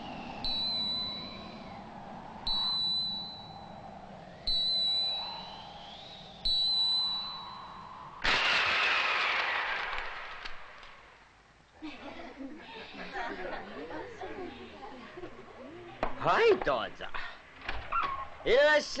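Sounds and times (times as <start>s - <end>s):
soft wavering tone: 0.0s - 8.2s.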